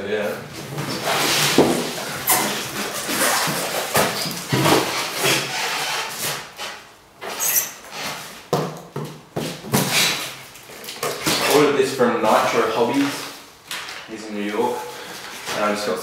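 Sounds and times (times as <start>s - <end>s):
cardboard boxes scraping: 0.3s - 8.5s.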